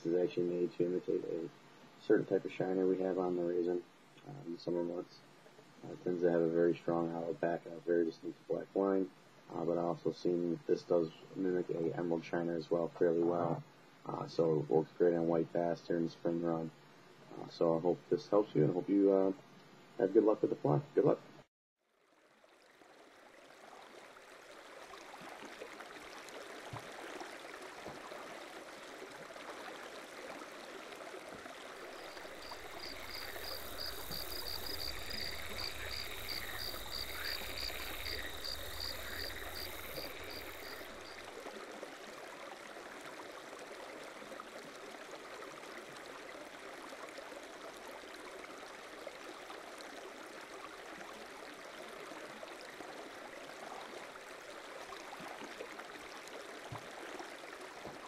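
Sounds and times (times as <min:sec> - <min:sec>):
running water: 0:22.0 - 0:58.0
rapid pulsing call: 0:32.0 - 0:41.2.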